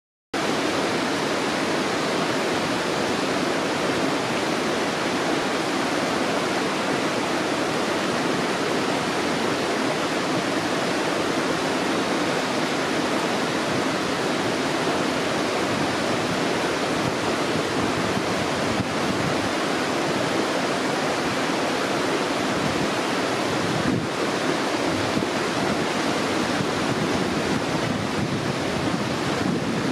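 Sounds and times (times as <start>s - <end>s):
stream water rushing over stones: 0.4s - 29.9s.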